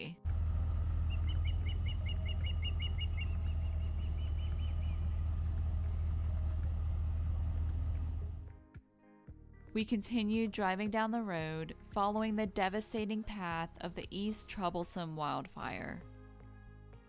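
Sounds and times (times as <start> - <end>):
steady low rumble: 0.3 - 8.5
ospreys chirping: 1.0 - 5.2.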